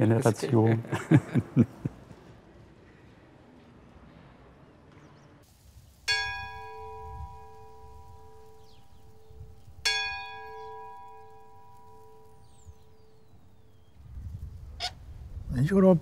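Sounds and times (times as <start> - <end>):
church bell ringing: 6.1 - 13.3.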